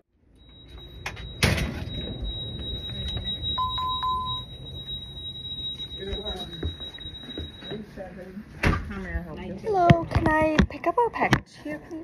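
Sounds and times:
electronic beep: 0.3 - 8.1.

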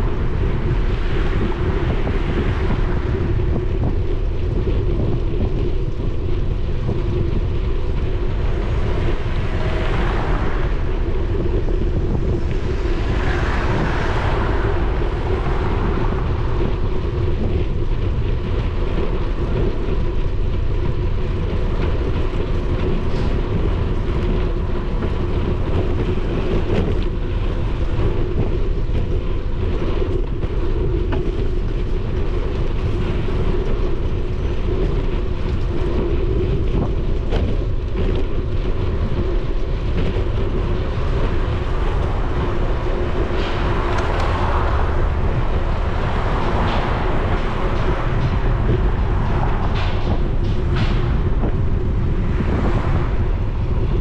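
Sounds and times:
constant hum: 0.0 - 54.0
wind rushing over microphone: 0.0 - 54.0
car passing: 8.4 - 17.5.

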